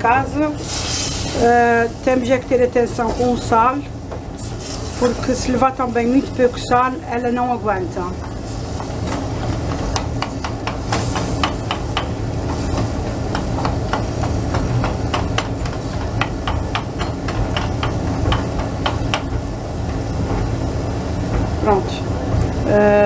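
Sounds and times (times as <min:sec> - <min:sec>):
cooking pot hissing: 0:00.5 - 0:02.2, 0:08.3 - 0:17.9.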